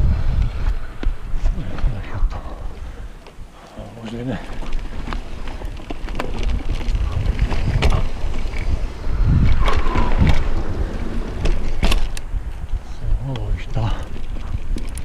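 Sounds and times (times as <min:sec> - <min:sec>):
bike rolling over rough trail: 0:00.0 - 0:15.0
wind buffeting microphone: 0:00.0 - 0:15.0.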